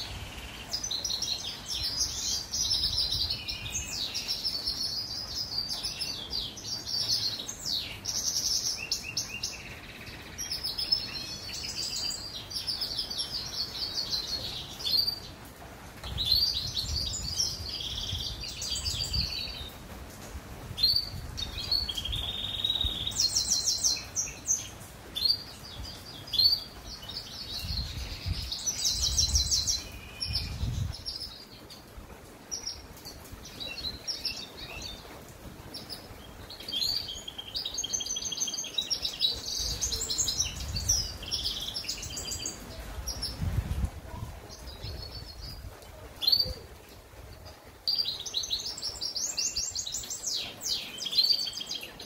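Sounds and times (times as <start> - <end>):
finch singing twittering trills: 20.8 - 31.9.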